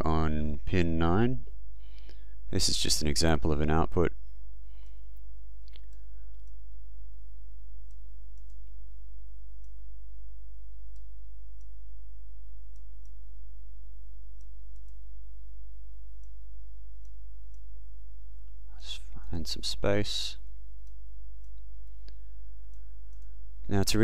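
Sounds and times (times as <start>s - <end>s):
steady low hum: 0.0s - 24.0s
computer mouse clicks: 5.7s - 6.6s, 7.9s - 8.8s, 14.4s - 15.0s, 20.8s - 23.4s.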